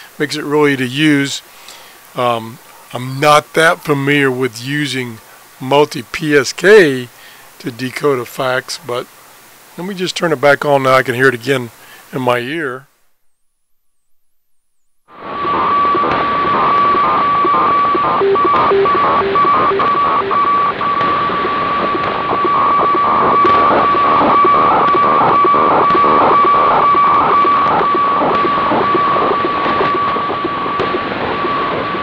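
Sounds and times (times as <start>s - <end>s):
static hiss: 0.0s - 32.0s
pulsed radio tone signal: 13.3s - 32.0s.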